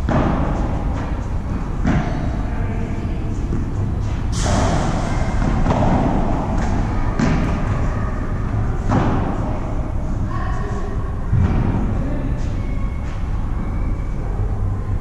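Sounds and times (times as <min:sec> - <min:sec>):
steady low rumble: 0:00.0 - 0:15.0
echoing ball hits: 0:03.0 - 0:09.9.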